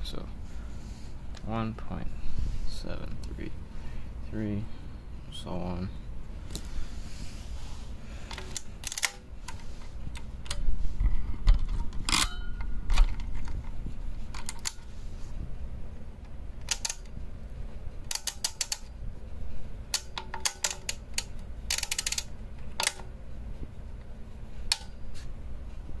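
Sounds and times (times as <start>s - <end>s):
mechanical calculator clicking: 16.6s - 17.1s, 18.1s - 18.9s, 20.0s - 23.0s.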